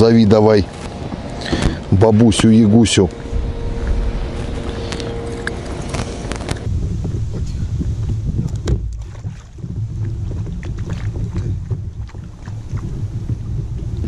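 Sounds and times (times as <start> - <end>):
wind buffeting microphone: 0.0 - 14.0
knocks and taps from kayak: 6.8 - 14.0.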